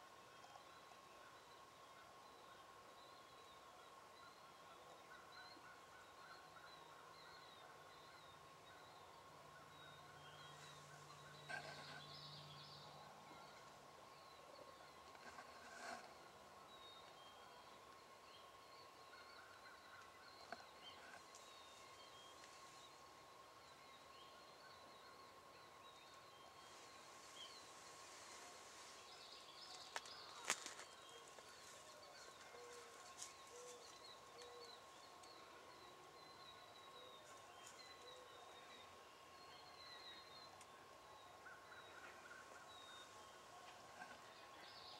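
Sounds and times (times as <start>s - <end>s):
wild turkey call: 3.8s - 12.2s, 30.0s - 36.2s, 41.3s - 44.7s
turkeys calling: 9.5s - 12.0s, 29.9s - 34.8s.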